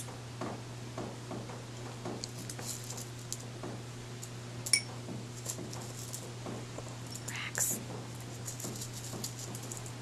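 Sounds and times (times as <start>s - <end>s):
sharp clink: 4.7s - 4.9s.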